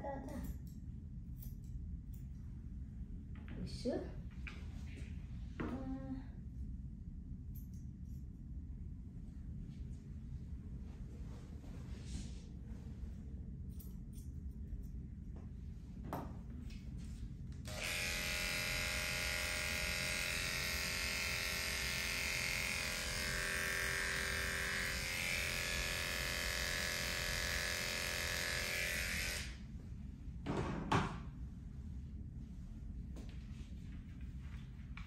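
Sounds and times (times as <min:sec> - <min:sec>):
electric pet clipper buzzing: 0:17.6 - 0:29.6.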